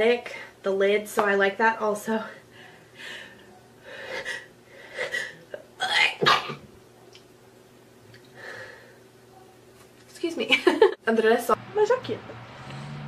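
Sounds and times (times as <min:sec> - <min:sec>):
soft breath: 0:02.2 - 0:05.4, 0:08.4 - 0:09.0
woman sneezing: 0:05.1 - 0:06.6.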